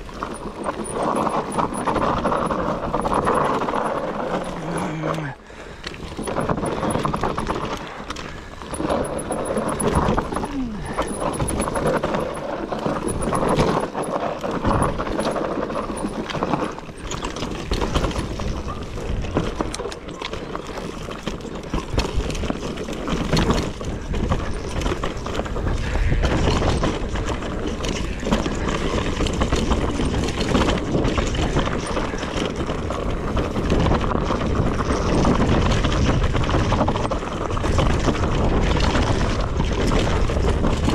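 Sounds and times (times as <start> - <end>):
bike chain and frame rattling: 0.0 - 40.9
wind buffeting microphone: 21.7 - 40.9.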